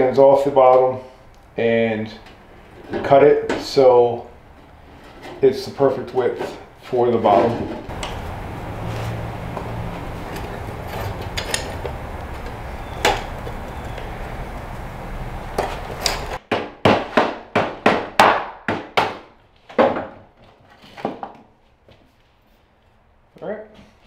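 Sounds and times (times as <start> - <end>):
steady low hum: 7.9 - 16.4
sharp metallic clinks: 10.3 - 11.9.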